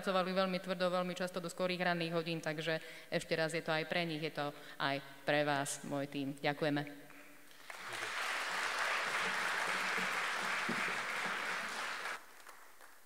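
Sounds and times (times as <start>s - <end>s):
audience applauding: 7.6s - 13.0s.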